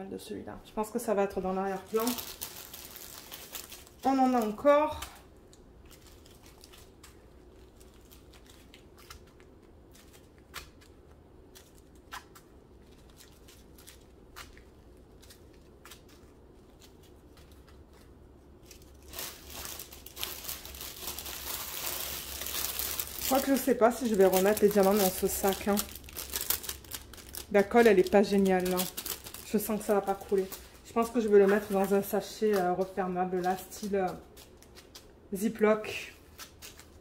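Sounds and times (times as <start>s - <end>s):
plastic crinkling: 1.4s - 35.2s, 35.9s - 37.0s
plastic bags clicking and rustling: 1.7s - 5.2s, 18.6s - 35.0s.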